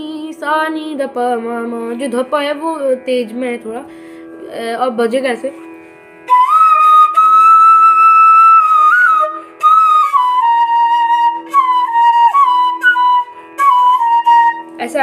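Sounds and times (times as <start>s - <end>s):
flute playing slow melody: 6.2s - 15.0s.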